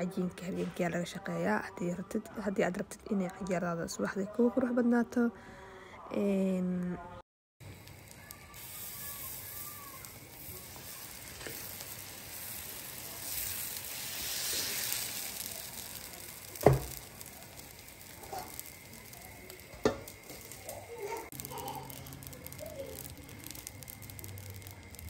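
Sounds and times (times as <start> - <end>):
batter sizzling on griddle: 7.6 - 25.0.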